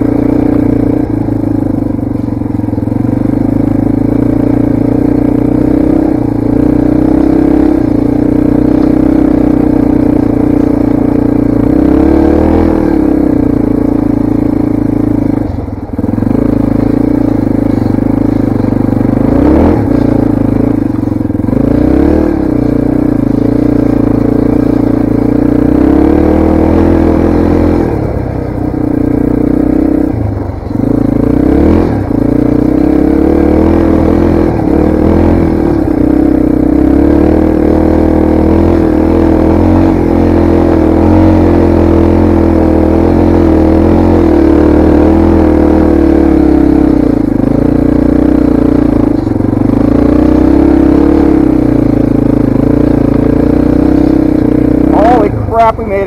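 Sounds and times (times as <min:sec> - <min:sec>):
dirt bike engine running: 0:00.0 - 0:56.0.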